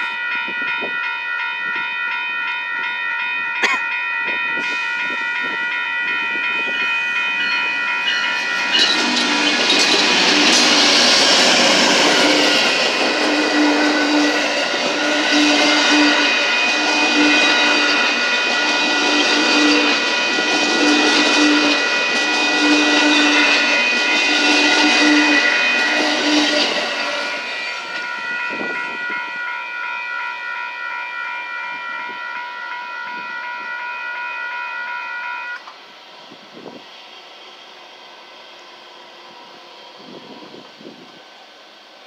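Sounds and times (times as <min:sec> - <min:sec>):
train wheels on rails: 0:00.0 - 0:33.7
crossing warning bell ringing: 0:00.0 - 0:35.7.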